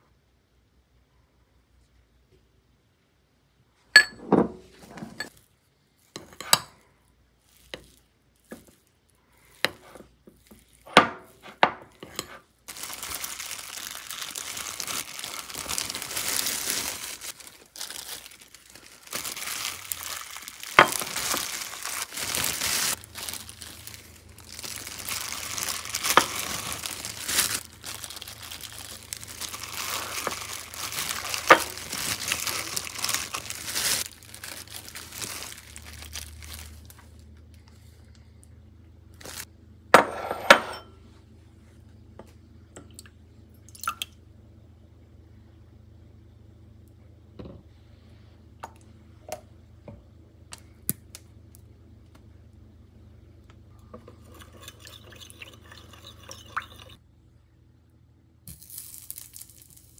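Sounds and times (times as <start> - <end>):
plastic glove crinkling: 7.0 - 38.1, 39.1 - 39.5, 58.5 - 59.9.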